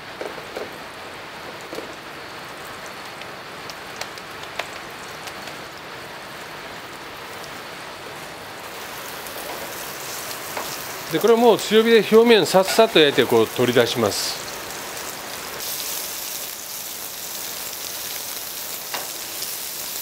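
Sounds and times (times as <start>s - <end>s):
steak sizzling in a pan: 8.1s - 20.0s.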